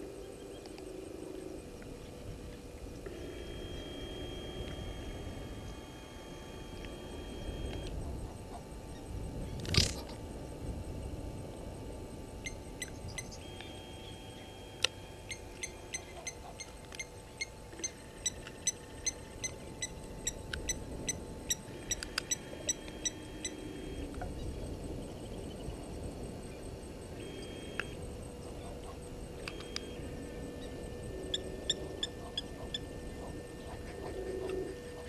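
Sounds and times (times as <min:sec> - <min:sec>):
faint steady hum: 0:00.0 - 0:35.0
high squeaky animal calls: 0:15.3 - 0:23.8.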